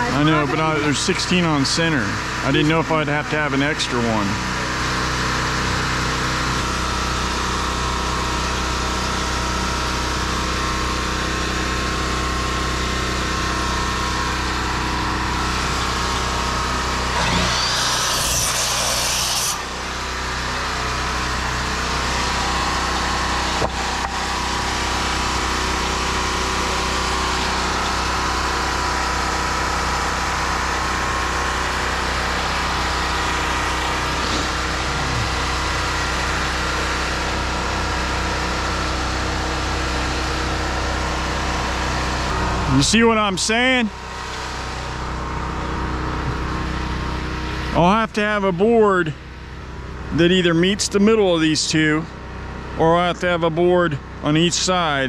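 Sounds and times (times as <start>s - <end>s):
small engine running: 0.0s - 42.8s
power tool burst: 16.8s - 20.2s.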